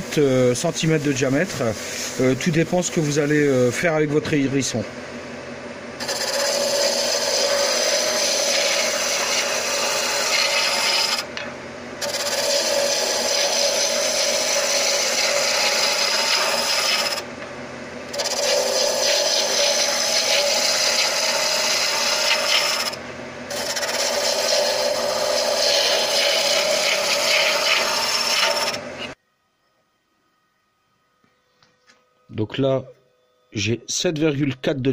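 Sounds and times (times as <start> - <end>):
wood lathe running: 0.0 - 4.8, 6.0 - 29.2
gouge scraping wood on lathe: 6.0 - 17.3, 18.1 - 29.2.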